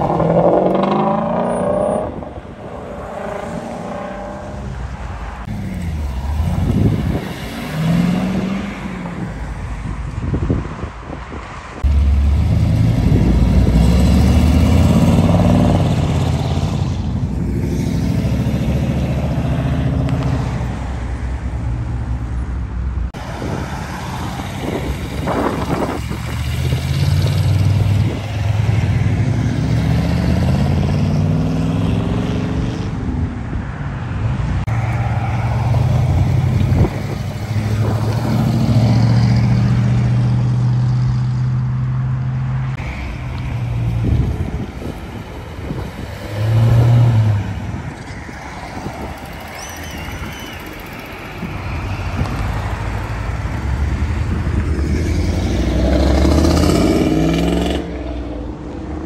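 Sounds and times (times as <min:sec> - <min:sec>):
car engines accelerating past: 0:51.7 - 0:58.6.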